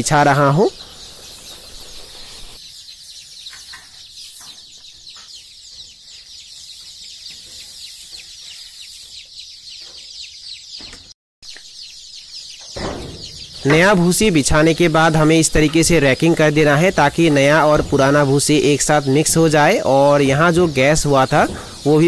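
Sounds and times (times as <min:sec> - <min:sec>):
chicks peeping: 0:00.0 - 0:22.0.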